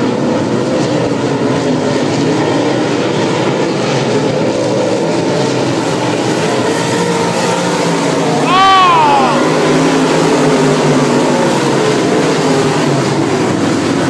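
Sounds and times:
race car engines: 0.0 - 14.0.

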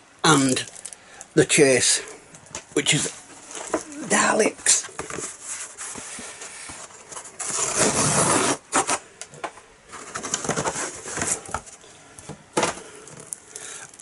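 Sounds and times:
cardboard rustling and scraping: 3.0 - 11.8.

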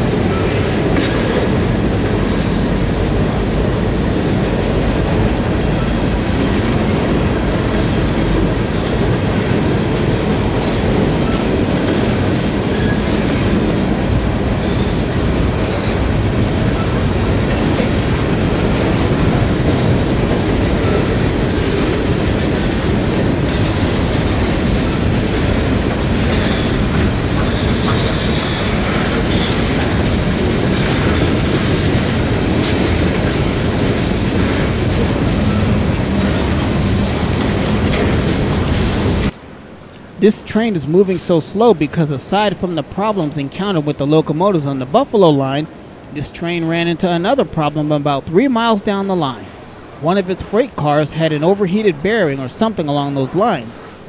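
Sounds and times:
wheels clicking over rail joints: 0.0 - 40.1
freight train wheels rumbling: 0.0 - 54.0.

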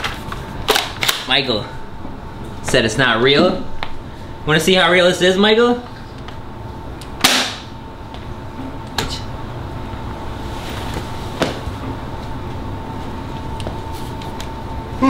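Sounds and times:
faint steady hum: 0.0 - 15.0
sharp crack: 7.2 - 7.7.

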